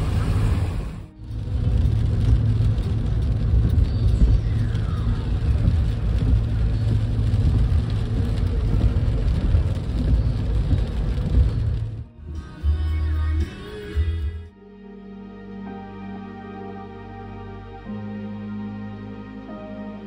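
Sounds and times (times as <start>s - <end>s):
car engine and tyres rumbling: 0.0s - 14.2s.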